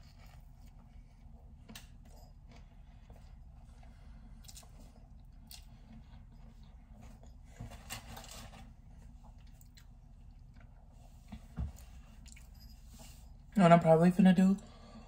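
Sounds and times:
faint chewing with wet clicks: 0.0s - 7.5s, 8.9s - 11.4s, 12.1s - 12.6s.

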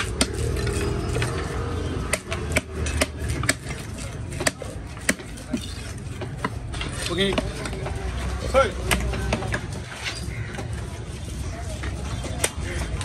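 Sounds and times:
knife striking wooden block: 2.0s - 6.6s.

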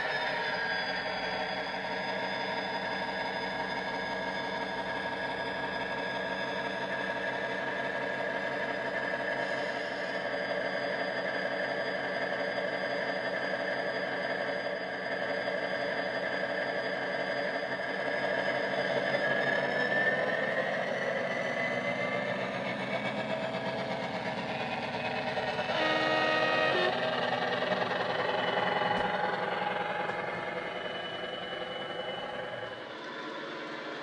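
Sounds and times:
diesel engine sound from speaker: 19.9s - 31.3s.

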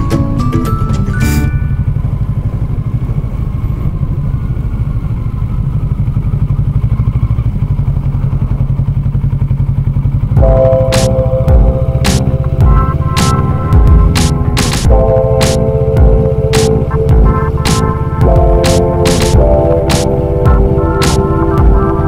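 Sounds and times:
music: 0.0s - 1.8s, 10.4s - 22.0s
motorcycle engine running: 0.0s - 22.0s.

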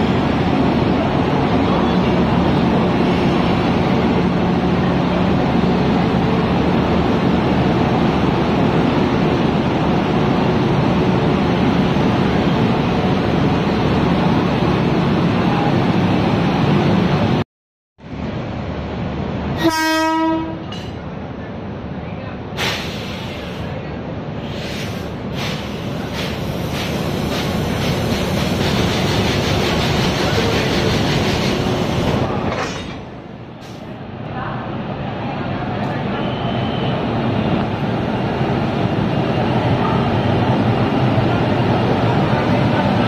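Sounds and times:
locomotive horn blast: 19.6s - 20.7s
locomotive machinery humming: 24.5s - 34.2s.

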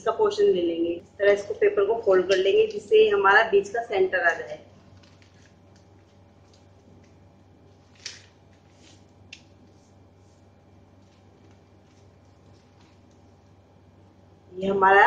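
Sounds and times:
paper crinkle: 4.6s - 13.6s
paper rustling: 4.7s - 13.5s.

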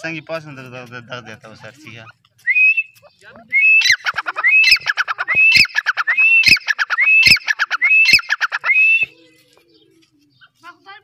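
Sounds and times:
francolin calling: 2.5s - 9.9s.

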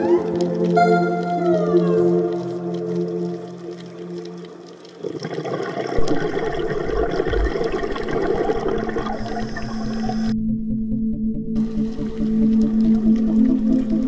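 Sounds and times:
soft ambient music: 0.0s - 5.0s, 6.0s - 14.0s
rushing bubbling water: 0.0s - 10.3s, 11.6s - 14.0s
deep rumbles: 6.0s - 13.3s.

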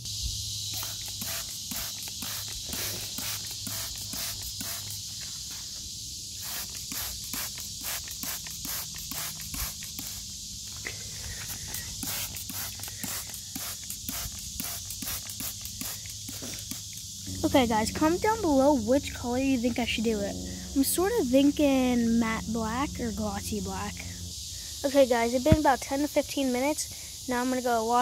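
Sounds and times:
spray bottle squirting: 0.7s - 5.1s, 6.4s - 10.2s, 11.3s - 17.1s.

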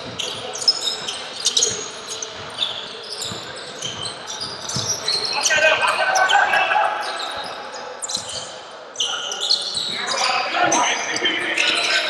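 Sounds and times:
basketball bouncing on court: 0.0s - 6.0s
shoe squeaks: 0.0s - 12.0s.

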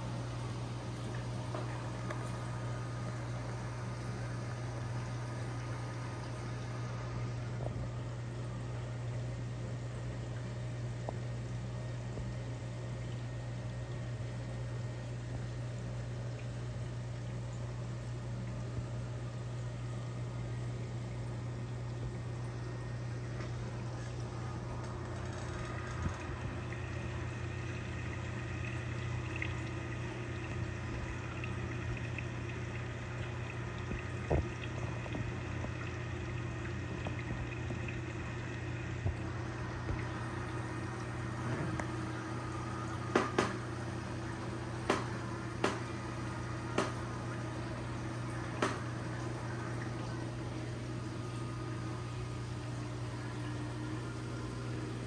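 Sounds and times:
pump hum: 0.0s - 55.0s.

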